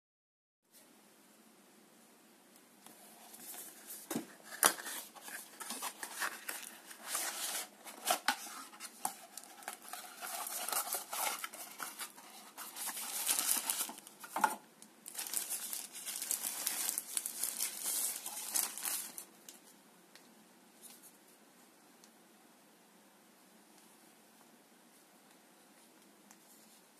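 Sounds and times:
paper rustling and crinkling: 0:02.9 - 0:19.6.

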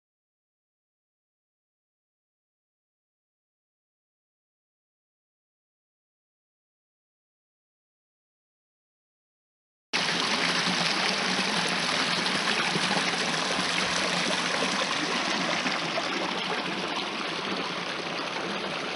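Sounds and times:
creek running over stones: 0:10.0 - 0:18.9.

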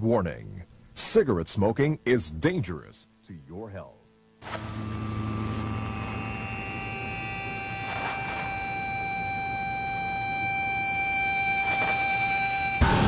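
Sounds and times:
lit fuse hissing: 0:04.4 - 0:12.9
high-pitched electronic tone: 0:04.5 - 0:13.0.

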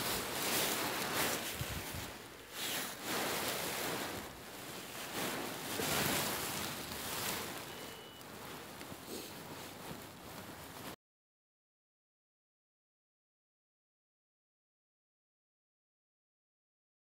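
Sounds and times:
wind buffeting microphone: 0:00.0 - 0:02.4.

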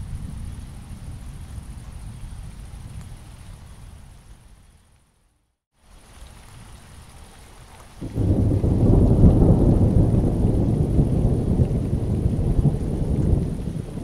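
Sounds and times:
low roll of thunder: 0:00.0 - 0:04.0, 0:08.0 - 0:14.0
rain on wet pavement: 0:00.1 - 0:04.5, 0:05.8 - 0:14.0.

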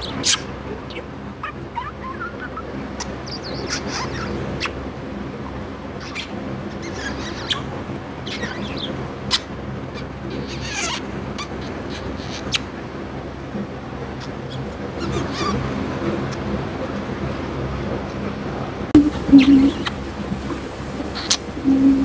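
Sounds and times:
budgerigar chirping: 0:00.0 - 0:04.8, 0:06.0 - 0:12.7, 0:19.2 - 0:20.0
steady low hum: 0:00.0 - 0:22.0.

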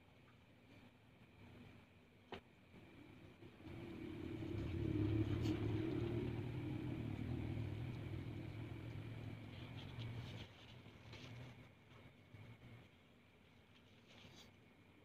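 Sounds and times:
passing vehicle engine rumble: 0:03.0 - 0:11.5.

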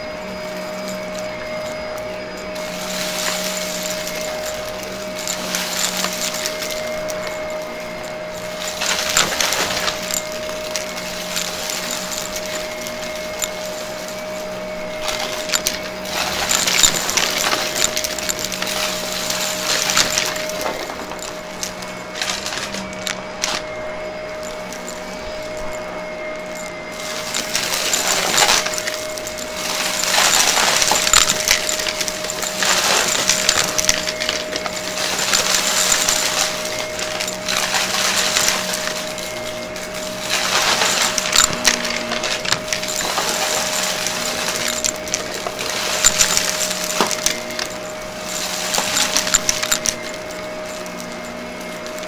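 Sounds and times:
vacuum cleaner motor whine: 0:00.0 - 0:52.0.

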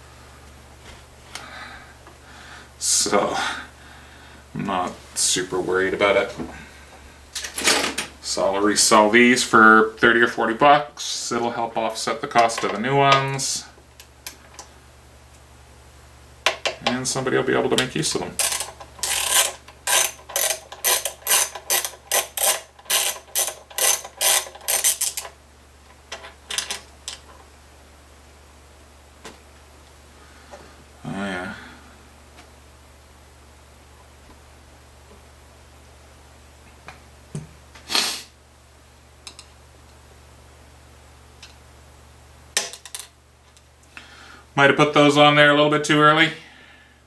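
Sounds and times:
ratchet tool rasping strokes: 0:18.4 - 0:25.3.

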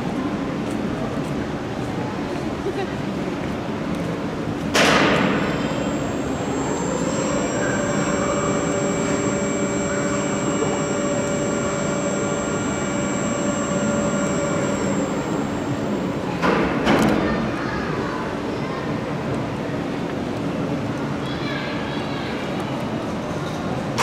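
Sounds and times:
electric crane drive whine: 0:04.3 - 0:16.5.

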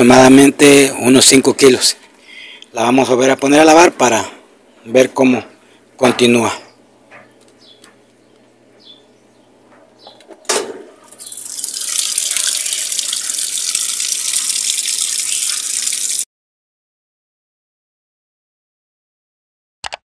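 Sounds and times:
water splashing into washing machine tub: 0:11.1 - 0:16.2.

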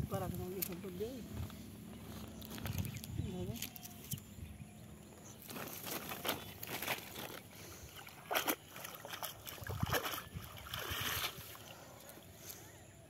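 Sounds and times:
cast net splashing in water: 0:06.0 - 0:11.7.

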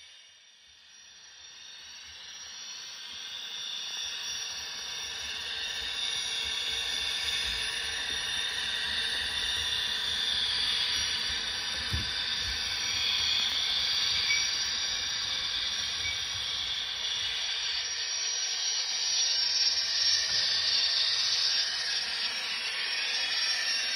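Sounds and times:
model locomotive turbine hiss: 0:00.0 - 0:23.9.

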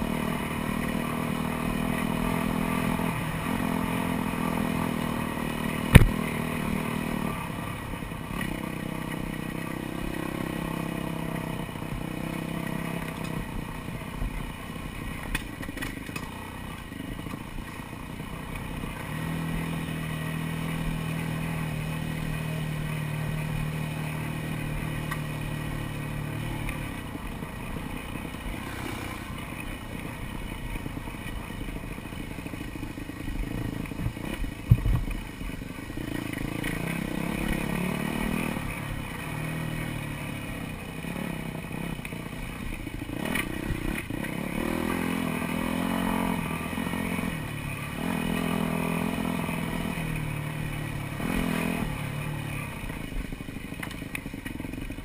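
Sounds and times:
dirt bike engine revving: 0:00.0 - 0:13.8, 0:18.7 - 0:53.3
sharp knock: 0:05.9 - 0:06.2
bike rattling on bumpy ground: 0:11.9 - 0:19.8, 0:24.4 - 0:41.2.

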